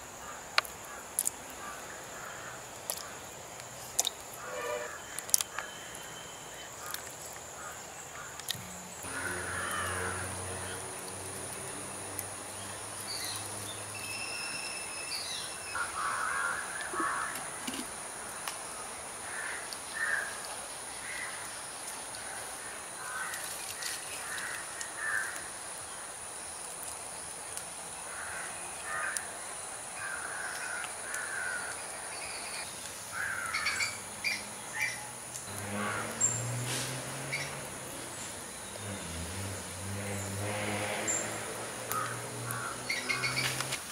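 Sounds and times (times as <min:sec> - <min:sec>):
crows cawing: 0:00.2 - 0:03.2, 0:09.0 - 0:10.8, 0:15.7 - 0:17.8, 0:19.2 - 0:21.5, 0:22.2 - 0:25.6, 0:28.1 - 0:29.3, 0:30.0 - 0:31.9, 0:33.1 - 0:34.0, 0:41.9 - 0:43.7.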